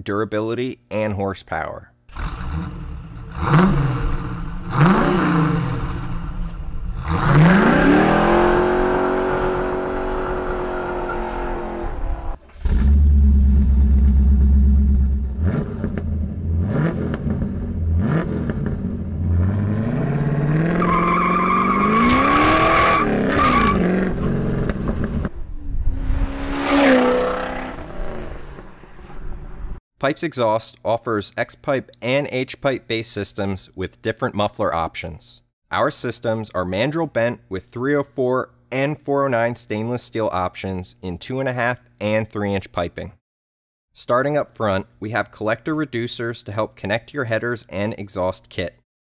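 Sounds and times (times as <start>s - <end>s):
car engine revving: 2.1s - 29.8s
car engine idling: 12.5s - 16.5s
car driving past: 25.3s - 29.8s.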